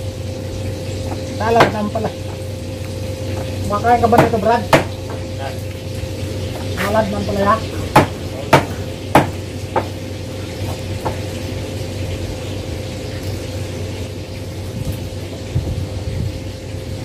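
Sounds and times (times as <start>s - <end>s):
steady low hum: 0.0s - 17.0s
sharp knocks: 4.2s - 5.2s, 7.9s - 10.0s.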